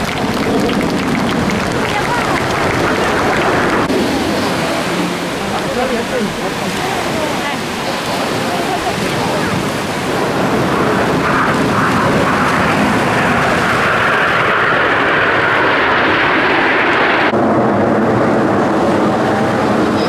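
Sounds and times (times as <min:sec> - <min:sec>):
jet aircraft flying past: 0:00.0 - 0:20.0.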